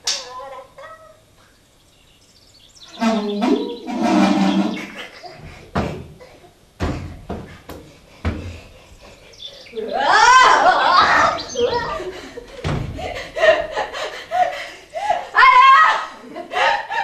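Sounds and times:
horn-like tone through watering can: 0:03.0 - 0:04.8.

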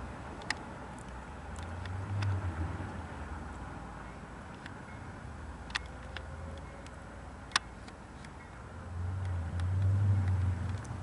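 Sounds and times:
vehicle engine rumble: 0:00.0 - 0:11.0
sharp clicks: 0:00.4 - 0:02.4, 0:05.6 - 0:08.4.

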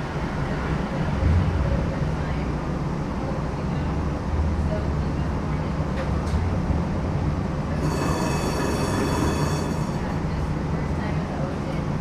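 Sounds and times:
streetcar rumbling: 0:00.0 - 0:12.0
steel wheels squealing on rails: 0:07.8 - 0:10.2.

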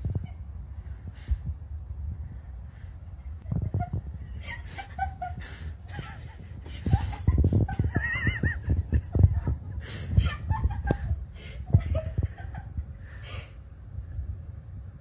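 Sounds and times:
person snickering and chuckling: 0:03.2 - 0:13.6.

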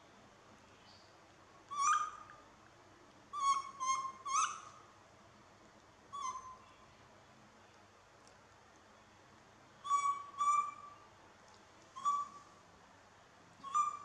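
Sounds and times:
baby monkey fluttering calls: 0:01.7 - 0:02.3, 0:03.3 - 0:04.8, 0:11.9 - 0:12.6, 0:13.6 - 0:14.0.

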